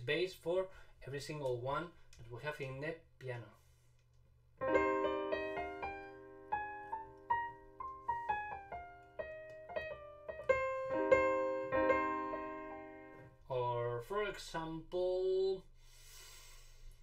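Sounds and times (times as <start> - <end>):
piano playing: 4.6 - 13.4.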